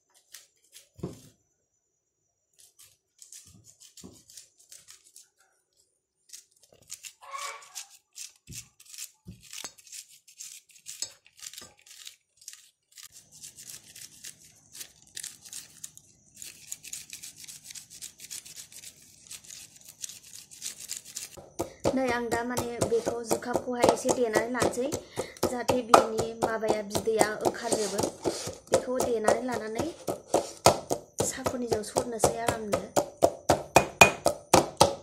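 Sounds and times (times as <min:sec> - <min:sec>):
corn kernels scraped off cob: 0:00.1 - 0:01.3, 0:02.6 - 0:05.4, 0:06.2 - 0:21.4, 0:26.6 - 0:33.3.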